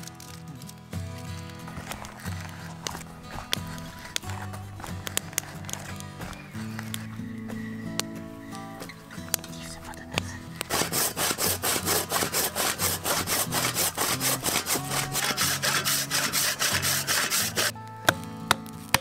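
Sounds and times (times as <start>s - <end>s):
auger rasping into wood: 1.6s - 9.5s, 10.1s - 17.7s
axe chopping wood: 10.6s - 19.0s.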